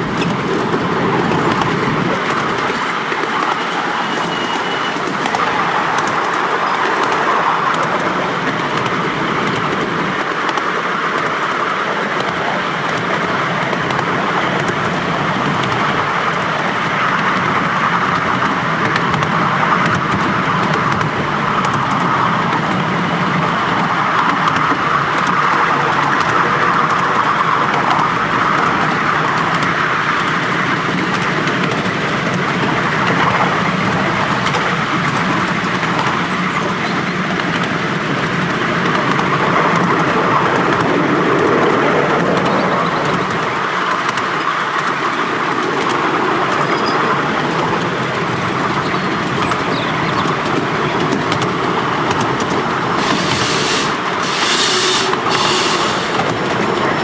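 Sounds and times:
carriage wheels rattling on rails: 0.0 - 57.0
steam hissing: 52.0 - 57.0.

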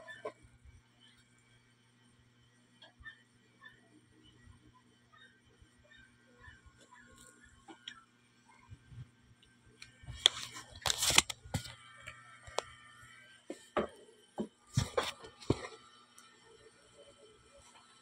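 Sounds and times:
rustling and scraping on microphone: 10.0 - 11.8, 14.7 - 15.9.

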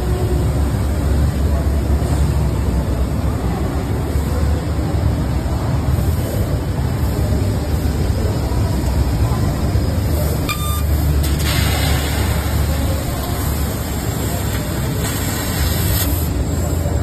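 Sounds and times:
noisy hall background: 0.0 - 17.0
laser cutting hiss: 11.3 - 16.4.

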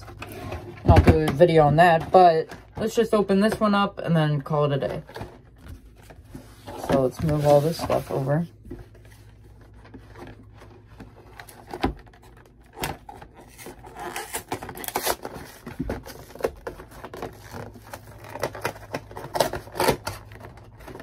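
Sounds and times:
packaging rustling and tearing: 5.0 - 21.0.

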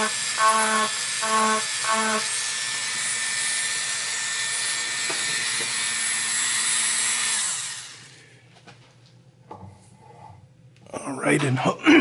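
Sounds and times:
rotary tool grinding: 0.0 - 8.2.

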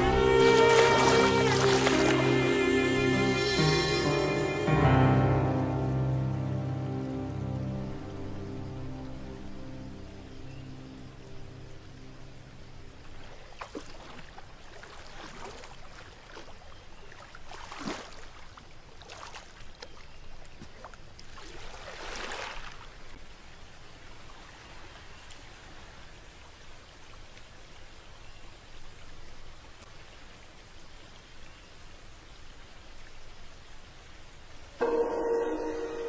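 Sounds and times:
water splashing and sloshing: 0.0 - 4.1, 11.2 - 34.8.

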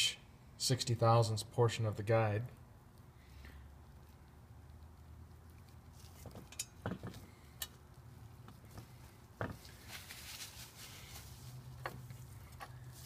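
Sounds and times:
low steady hum: 0.0 - 13.0
soft rustle: 5.4 - 6.5, 8.2 - 13.0
light handling clicks and knocks: 6.2 - 7.8.

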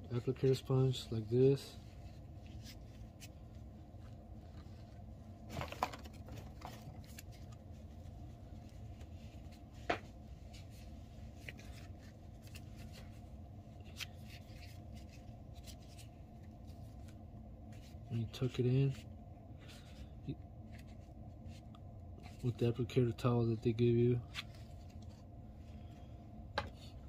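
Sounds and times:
low room hum: 0.0 - 27.0.

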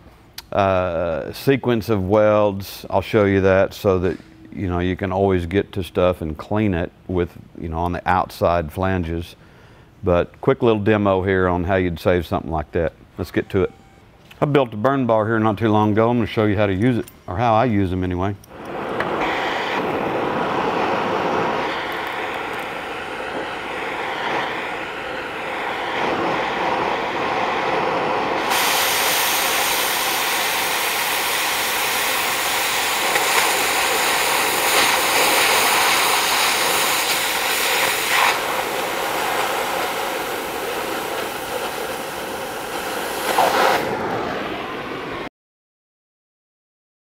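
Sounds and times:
sharp oxygen jet hiss: 18.5 - 44.4
cutting torch hissing: 18.5 - 45.0.

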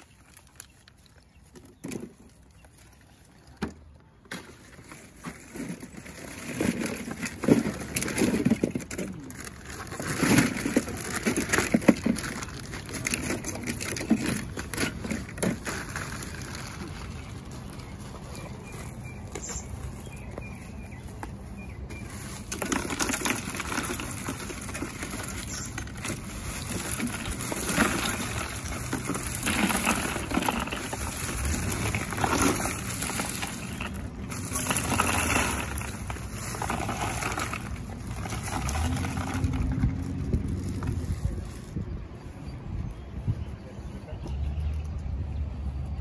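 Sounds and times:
plastic bags crinkling: 0.0 - 3.6, 4.3 - 41.9
ice cubes rattling over bottles: 4.3 - 18.0, 22.0 - 41.8.

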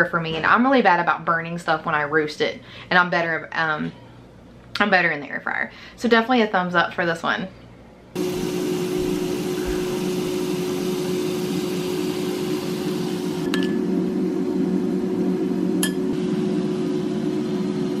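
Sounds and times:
steady hum: 7.8 - 18.0.

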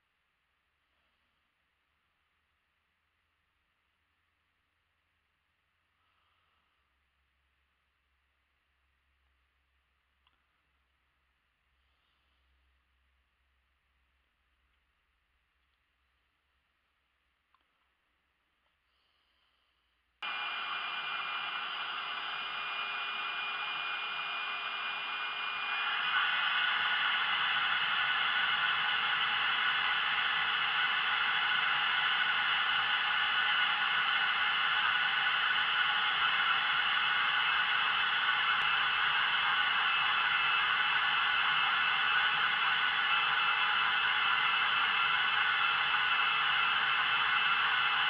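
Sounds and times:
vacuum cleaner whining rush: 20.2 - 48.0.

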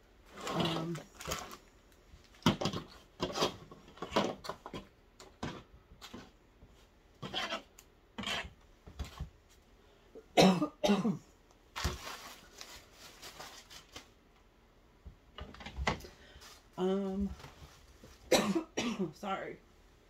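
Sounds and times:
plastic packaging crinkling: 0.3 - 3.5, 11.7 - 14.2.

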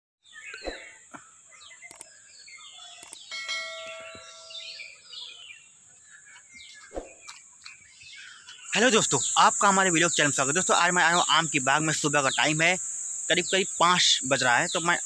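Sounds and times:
birds chirping: 0.2 - 15.0
bell-like chime: 3.3 - 5.0
insect drone: 6.7 - 15.0.

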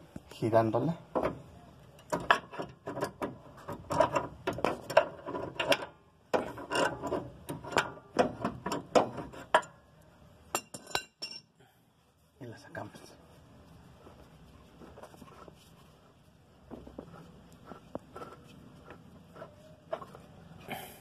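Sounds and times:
pipe wrench clicking and scraping: 2.0 - 9.8.

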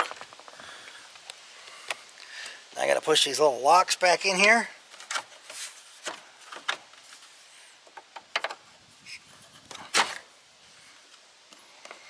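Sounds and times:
plastic clicks and knocks: 7.9 - 8.6.

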